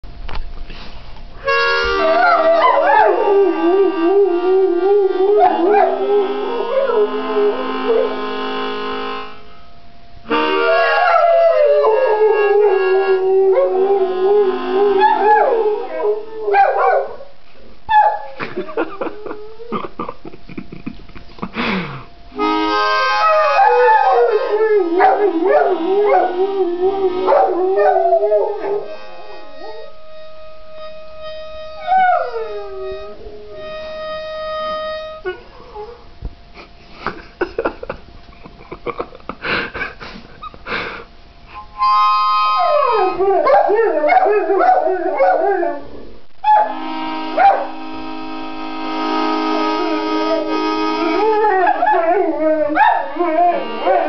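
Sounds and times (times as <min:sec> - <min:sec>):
harmonica chords: 0:01.3 - 0:17.2, 0:18.3 - 0:54.0
dogs howling: 0:01.9 - 0:08.3, 0:10.5 - 0:19.9, 0:23.1 - 0:30.0, 0:31.8 - 0:33.7, 0:42.6 - 0:46.8, 0:49.6 - 0:54.0
dogs yipping: 0:16.5 - 0:17.3, 0:17.9 - 0:18.5, 0:42.8 - 0:45.6, 0:47.4 - 0:47.7, 0:51.2 - 0:54.0.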